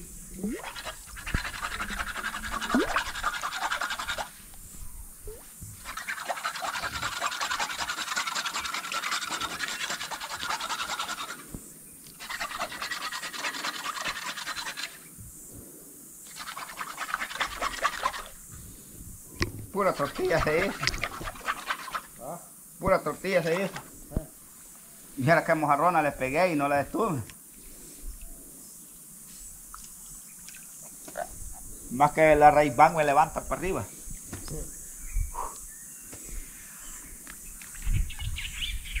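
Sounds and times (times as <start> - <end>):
crackling fizzing river water: 0.0 - 4.6, 19.4 - 24.6.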